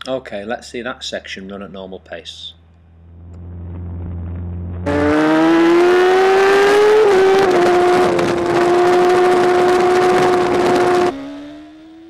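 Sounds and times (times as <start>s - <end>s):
wind rush: 3.4s - 11.2s
motorcycle engine at high revs: 4.8s - 12.0s.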